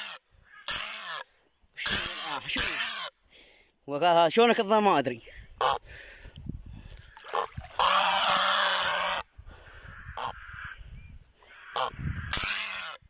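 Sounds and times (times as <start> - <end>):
heron harsh squawk: 0.0 - 3.2.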